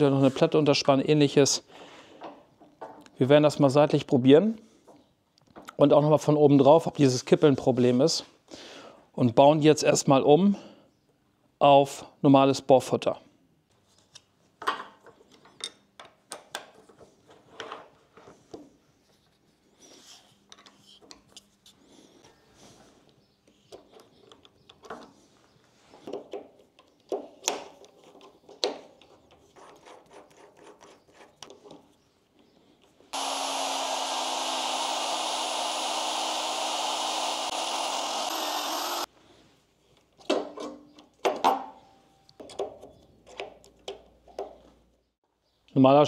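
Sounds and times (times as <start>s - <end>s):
magnetic drill motor drilling: 33.2s - 39.1s.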